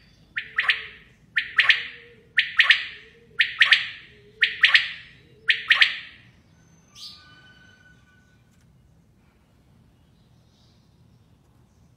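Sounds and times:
quail calling: 0.4s - 6.2s.

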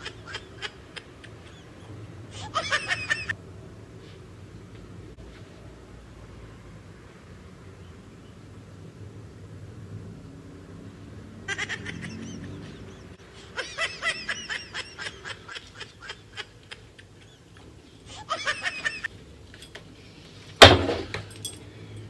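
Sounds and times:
comical laugh-like honks: 0.0s - 3.4s, 11.5s - 17.5s, 18.1s - 19.1s.

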